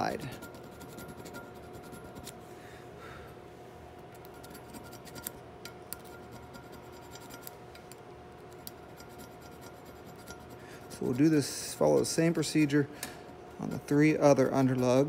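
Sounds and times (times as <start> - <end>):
file scraping metal: 0.0 - 2.3, 4.2 - 7.6, 8.7 - 11.3
steady hum: 0.0 - 15.0.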